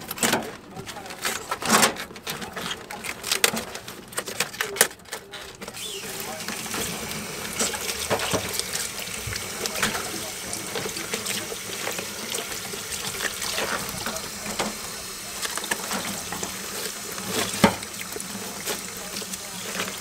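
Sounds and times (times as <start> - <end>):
clatter of things handled: 0.0 - 5.9
tap water running into sink: 5.7 - 20.0.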